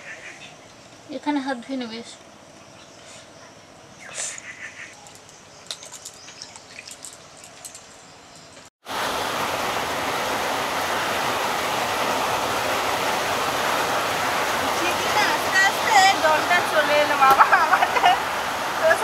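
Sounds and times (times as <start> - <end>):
loud steady rain: 8.8 - 19.0.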